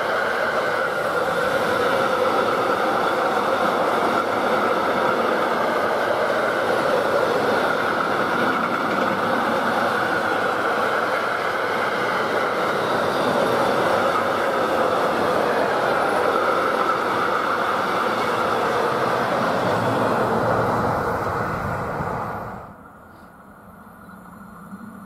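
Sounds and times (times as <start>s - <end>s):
freight train wheels rumbling on rails: 0.0s - 25.0s.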